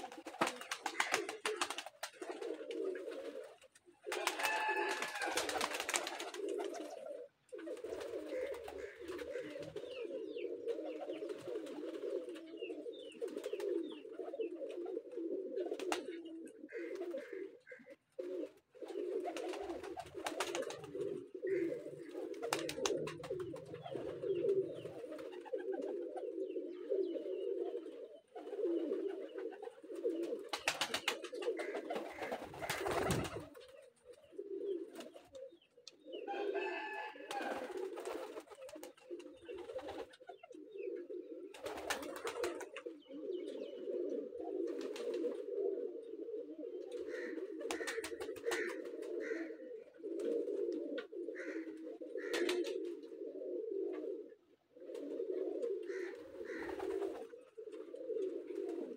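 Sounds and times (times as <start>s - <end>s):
wing flutters: 0.0s - 6.9s, 18.5s - 26.0s, 28.4s - 33.9s, 37.3s - 40.3s, 41.5s - 42.9s, 55.9s - 57.8s
pigeons cooing: 0.0s - 58.9s.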